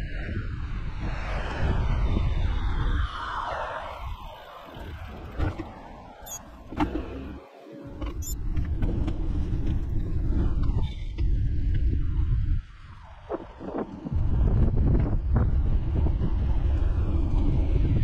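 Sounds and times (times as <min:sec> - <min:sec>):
wind rumbling on microphone: 0:00.0 - 0:18.0.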